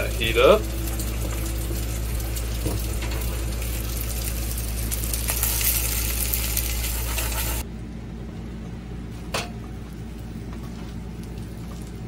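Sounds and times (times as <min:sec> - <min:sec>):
egg sizzling in a pan: 0:00.0 - 0:07.6
constant low hum: 0:00.0 - 0:12.0.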